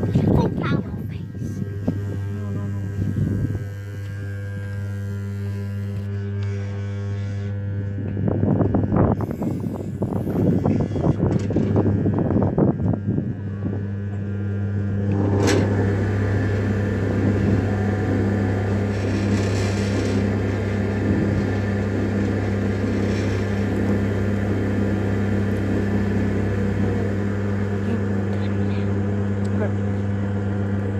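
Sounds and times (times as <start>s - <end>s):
potter's wheel motor hum: 0.0s - 30.9s.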